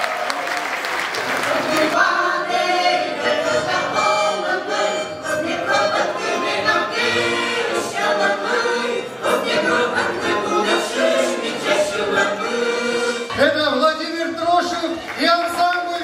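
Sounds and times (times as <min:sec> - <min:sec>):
audience applause: 0:00.0 - 0:02.0
vocal ensemble singing in chorus: 0:01.0 - 0:13.5.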